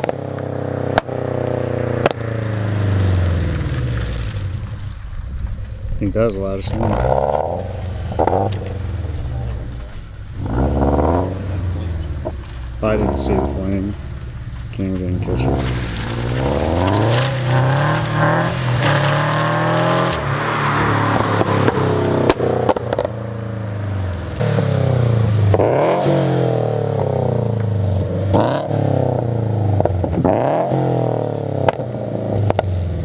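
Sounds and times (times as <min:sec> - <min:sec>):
exhaust pops and crackles: 0:00.0 - 0:20.4, 0:21.1 - 0:23.4, 0:27.0 - 0:30.7, 0:31.6 - 0:33.0
car engine revving: 0:00.0 - 0:33.0.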